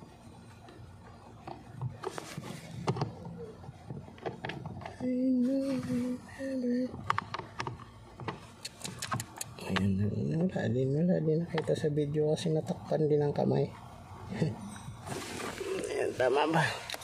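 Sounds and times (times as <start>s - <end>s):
man humming: 5.0s - 7.1s.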